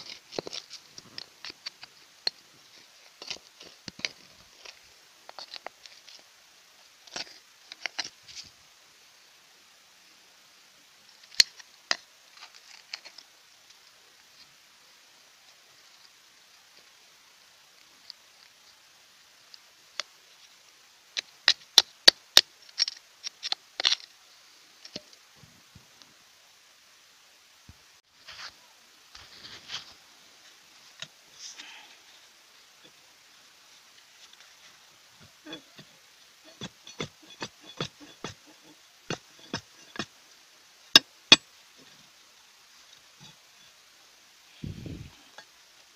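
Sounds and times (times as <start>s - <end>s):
trowel digging into stony soil: 36.5s - 40.1s.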